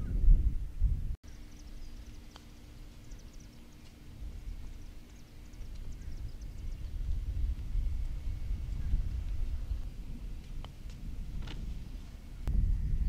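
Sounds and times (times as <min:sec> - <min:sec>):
steady low hum: 0:00.0 - 0:13.0
wind rumble on microphone: 0:00.0 - 0:13.0
small birds chirping: 0:01.2 - 0:11.2.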